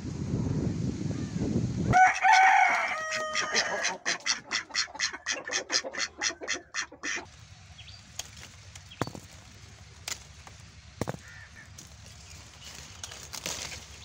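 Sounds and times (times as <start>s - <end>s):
ducks quacking rapidly: 3.0s - 7.3s, 11.1s - 11.8s.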